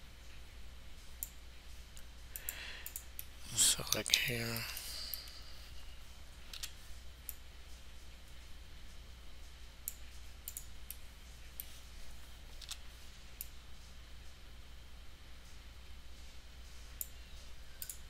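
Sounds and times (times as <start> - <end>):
steady low hum: 0.0 - 18.0
computer mouse clicking: 2.0 - 3.3, 6.4 - 7.4, 9.8 - 11.0, 12.6 - 12.8, 17.8 - 18.0.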